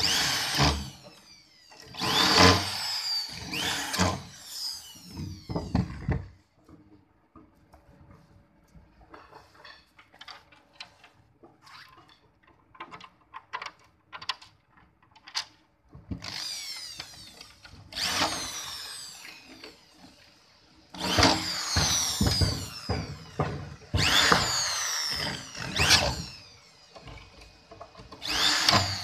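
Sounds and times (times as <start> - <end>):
electric drill driving screws: 0.0 - 6.3, 16.1 - 29.0
plastic parts and screws clicking: 9.1 - 19.8.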